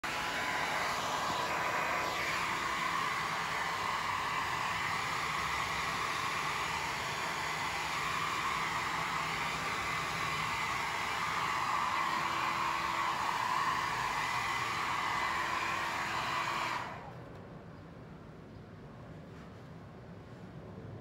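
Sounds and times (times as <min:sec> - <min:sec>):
hair dryer running: 0:00.0 - 0:17.2.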